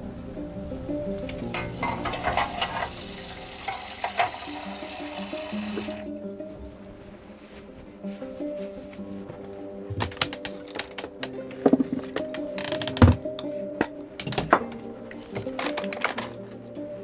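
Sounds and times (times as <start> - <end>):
background music: 0.0 - 17.0
dishes clinking: 1.4 - 4.8
water running from tap: 1.5 - 6.1.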